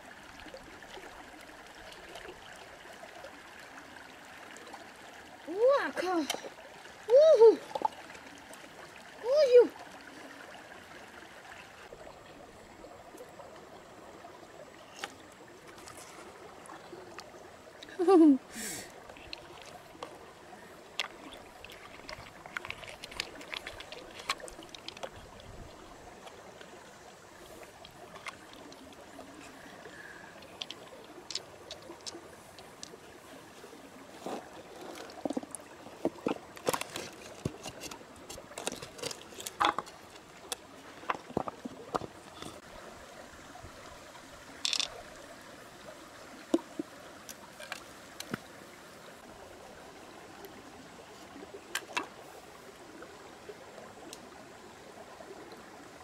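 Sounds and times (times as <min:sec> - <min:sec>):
shallow stream trickling: 0:00.0 - 0:56.0
wet clicks and squelches of shells: 0:21.0 - 0:25.5, 0:30.3 - 0:33.0, 0:44.6 - 0:45.0.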